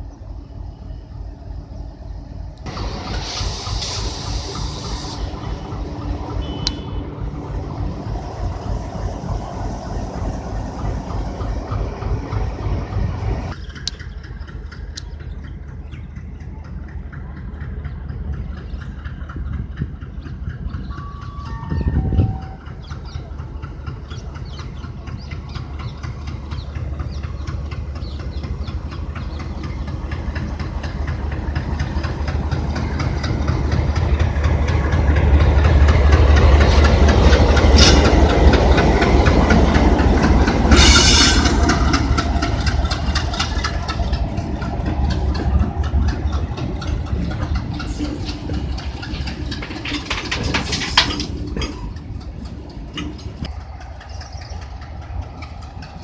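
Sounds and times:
diesel locomotive engine throbbing: 0.0 - 56.0
wagons clattering: 22.0 - 56.0.

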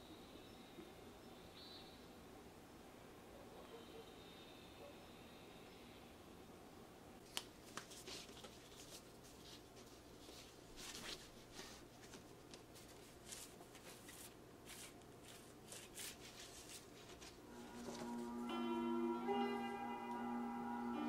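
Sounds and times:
vinyl record rustling and clicking: 7.2 - 20.9.

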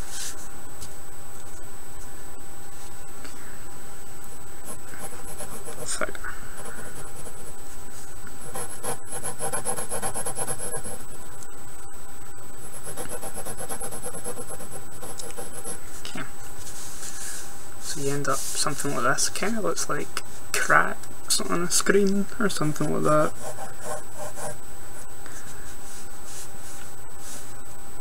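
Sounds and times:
pencil scratching on paper: 4.7 - 6.0, 8.4 - 11.0, 12.7 - 15.8, 23.2 - 24.6.

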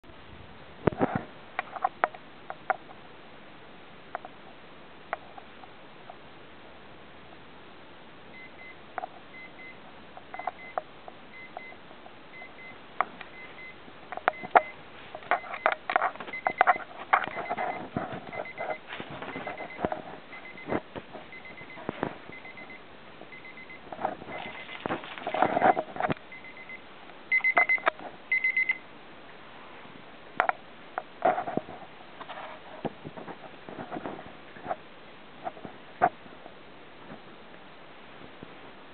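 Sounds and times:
alarm clock beeping: 8.4 - 9.8, 10.4 - 20.7, 21.3 - 24.8, 25.5 - 28.8
dog rustling and snuffling: 14.9 - 22.4.

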